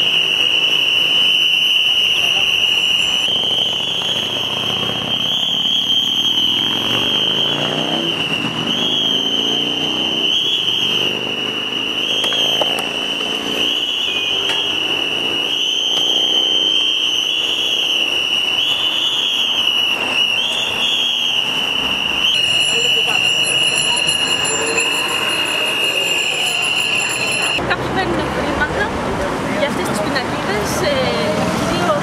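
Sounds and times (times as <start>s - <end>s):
cars passing: 0.0s - 32.0s
high-pitched whine: 20.0s - 27.6s.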